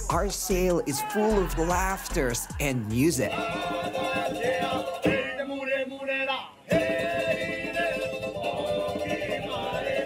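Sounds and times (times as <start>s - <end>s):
drum beaten with sticks: 0.0s - 5.4s, 6.7s - 10.0s
men singing together: 0.0s - 10.0s
strummed ukuleles: 6.7s - 10.0s.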